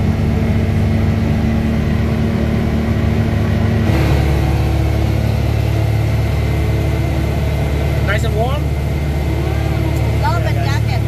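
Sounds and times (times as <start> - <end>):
utility vehicle engine running: 0.0 - 11.0.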